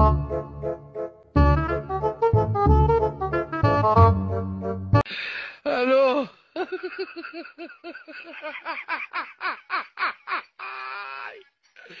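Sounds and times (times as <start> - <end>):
person laughing hard: 6.6 - 11.2.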